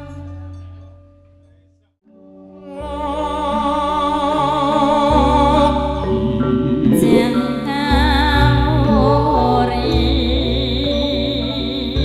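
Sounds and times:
ringing metallophone notes: 0.0 - 12.0
person singing ornamented line: 2.4 - 12.0.

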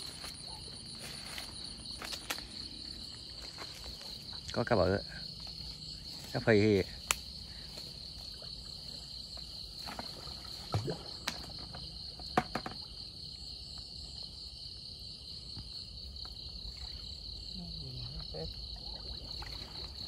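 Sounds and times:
night insects chirring: 0.0 - 20.0
knocks and water splashes: 9.7 - 13.0, 18.8 - 20.0.

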